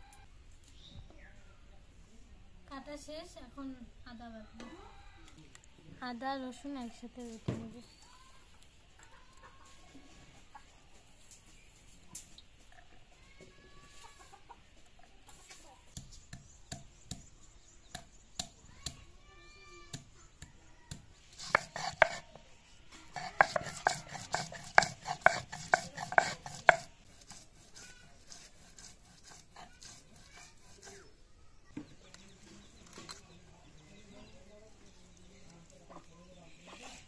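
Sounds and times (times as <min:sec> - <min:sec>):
stone crushing garlic on stone slab: 0:19.9 - 0:22.3, 0:23.1 - 0:30.8.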